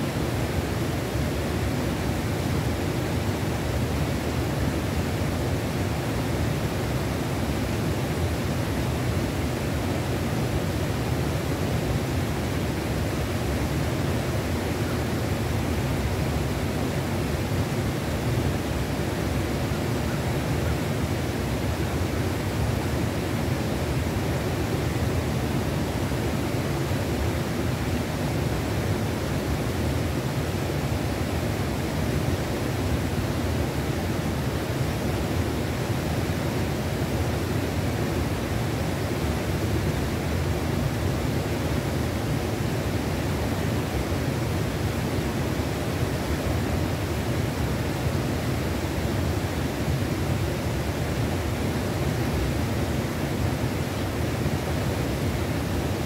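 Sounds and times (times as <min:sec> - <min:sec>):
fast-flowing river rushing: 0:00.0 - 0:56.0.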